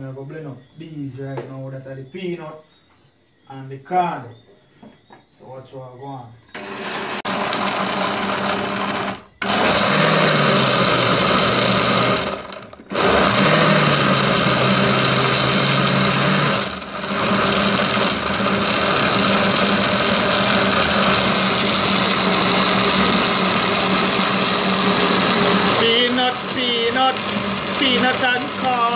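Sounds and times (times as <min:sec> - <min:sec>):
electric blender running: 0:06.5 - 0:28.9.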